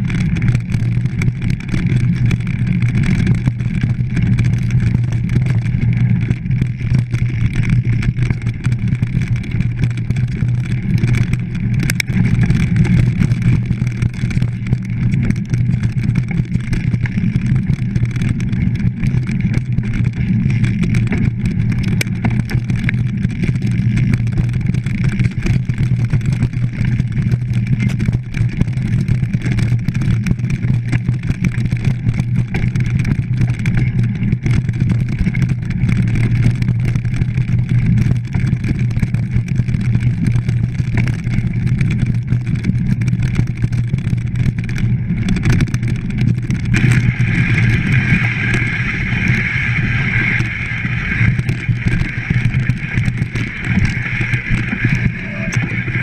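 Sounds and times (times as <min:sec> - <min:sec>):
bike rattles and knocks: 0:00.0 - 0:56.0.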